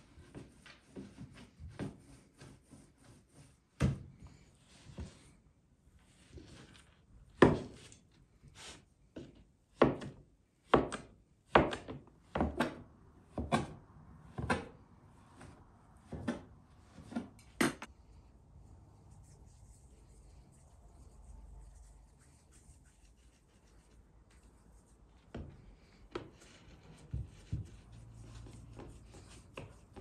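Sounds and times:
dough scraper knocking on wooden board: 0:09.8 - 0:14.7.

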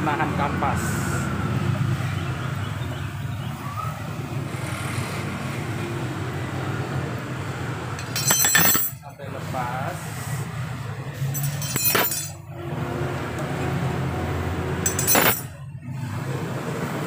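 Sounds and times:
vehicle engine humming: 0:00.0 - 0:17.0
metallic clink: 0:08.0 - 0:09.1, 0:11.2 - 0:12.5, 0:14.8 - 0:15.6.

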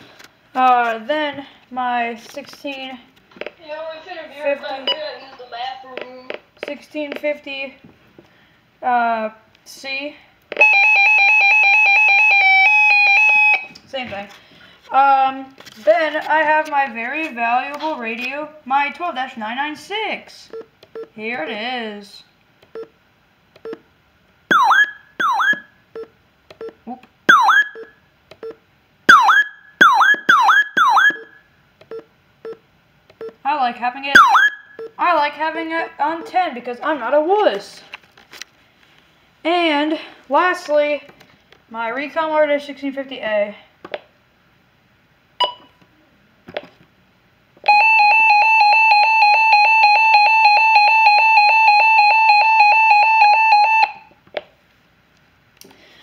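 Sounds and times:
pulsing electronic siren alarm: 0:10.6 - 0:13.8, 0:24.5 - 0:25.8, 0:27.3 - 0:28.0, 0:29.1 - 0:31.4, 0:34.2 - 0:34.8, 0:47.7 - 0:54.1
short button beeps: 0:45.4 - 0:45.8.

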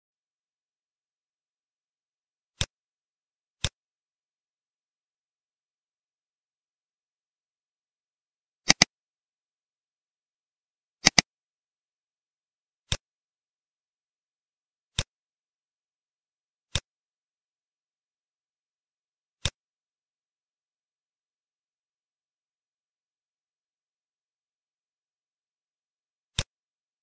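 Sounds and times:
computer mouse clicks: 0:08.7 - 0:08.9, 0:11.0 - 0:11.3, 0:14.9 - 0:15.1, 0:19.4 - 0:19.6, 0:26.4 - 0:26.6.

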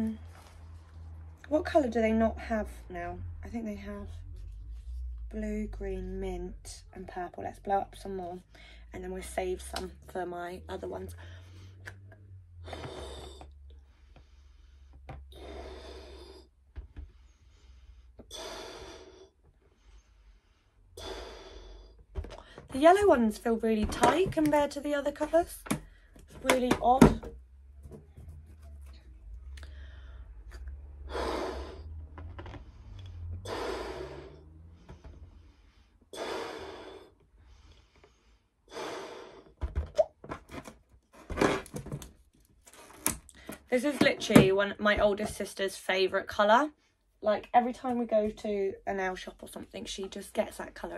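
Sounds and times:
woman blowing up balloon: 0:12.6 - 0:13.6, 0:30.5 - 0:32.2, 0:33.2 - 0:34.6, 0:36.1 - 0:37.2, 0:38.6 - 0:39.6.

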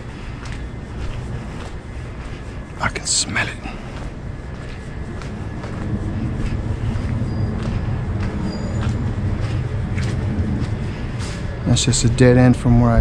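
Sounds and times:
footsteps on pavement: 0:00.0 - 0:12.6
low rumble: 0:00.0 - 0:13.0.

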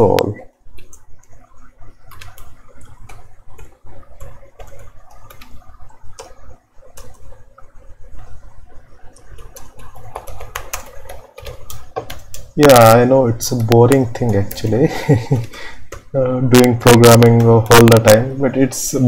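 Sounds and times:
steady low hum: 0:00.0 - 0:19.0
keyboard typing clicks: 0:00.1 - 0:08.3, 0:09.1 - 0:12.5.

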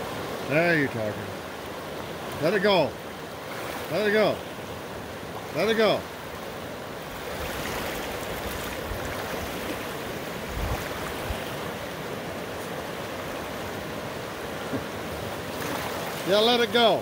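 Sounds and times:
river water rushing over rapids: 0:00.0 - 0:17.0.

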